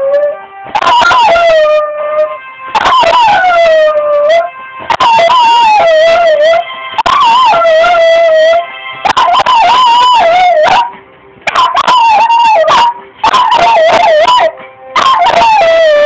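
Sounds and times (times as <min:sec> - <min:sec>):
dog howling: 0:00.0 - 0:10.9, 0:11.5 - 0:16.0
phone ringtone melody: 0:00.8 - 0:10.8.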